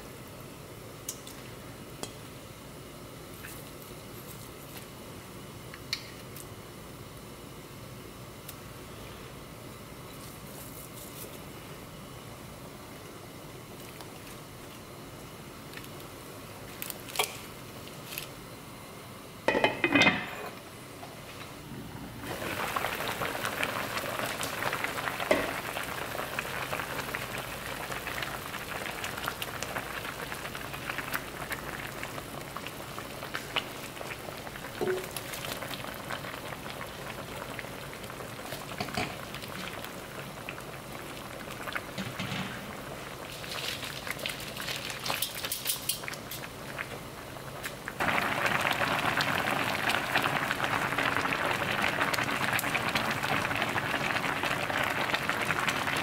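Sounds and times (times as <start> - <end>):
stew bubbling in a pot: 22.2 - 56.0.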